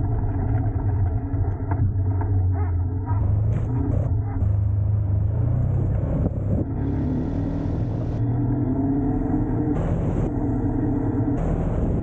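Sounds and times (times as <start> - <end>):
vehicle engine running: 0.0 - 12.0.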